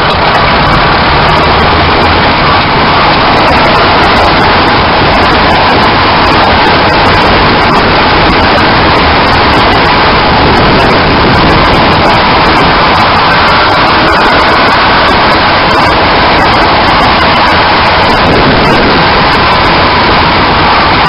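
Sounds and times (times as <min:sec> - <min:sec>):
tyre and road noise roar: 0:00.0 - 0:21.0.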